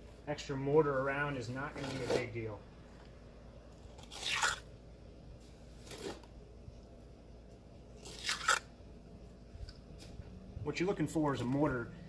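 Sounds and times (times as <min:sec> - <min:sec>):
trowel scraping wet mortar: 0:01.7 - 0:02.4, 0:03.8 - 0:04.6, 0:08.0 - 0:08.7.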